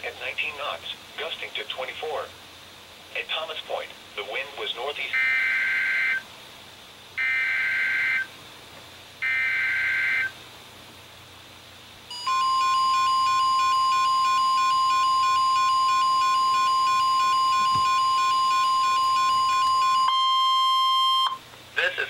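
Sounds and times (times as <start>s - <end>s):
steady warning alarm tone: 5.1s - 6.2s, 7.2s - 8.3s, 9.2s - 10.4s, 12.1s - 21.4s
warbling data bursts: 12.1s - 20.2s
rapidly alternating beeps: 12.1s - 21.4s.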